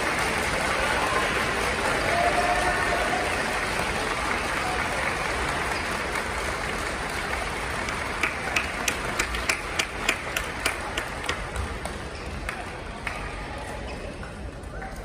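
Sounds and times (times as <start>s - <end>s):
audience applause: 0.0s - 13.1s
sharp hand claps: 3.2s - 13.3s.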